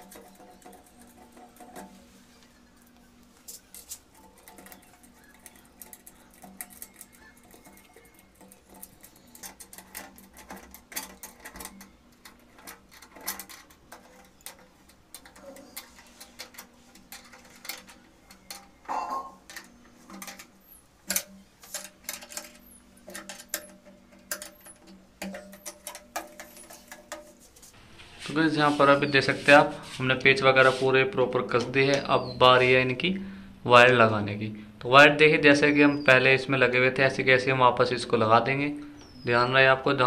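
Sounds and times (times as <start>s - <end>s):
metal nuts clicking and clinking: 0.0s - 27.7s.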